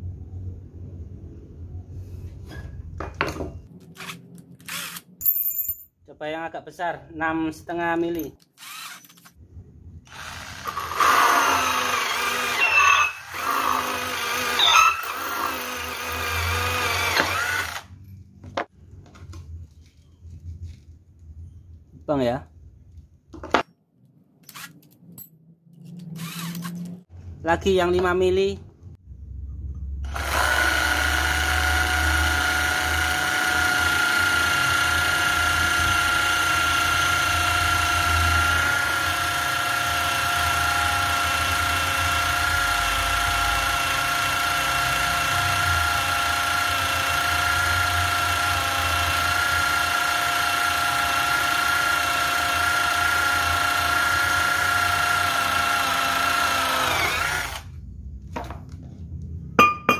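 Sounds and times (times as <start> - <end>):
electric drill whining: 4.0 - 5.1, 8.6 - 9.4, 10.1 - 17.9, 26.2 - 26.9, 30.1 - 57.8.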